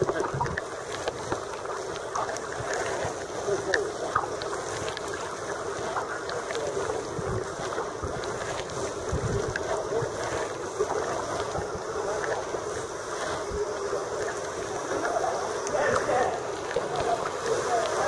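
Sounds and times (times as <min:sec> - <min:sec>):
water splashing around paddle: 0:00.0 - 0:18.0
wind buffeting microphone: 0:07.0 - 0:10.4.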